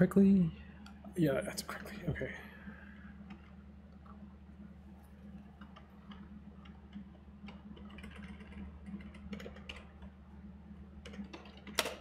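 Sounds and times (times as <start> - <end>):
low electrical hum: 0.0 - 12.0
keyboard typing clicks: 5.6 - 10.1.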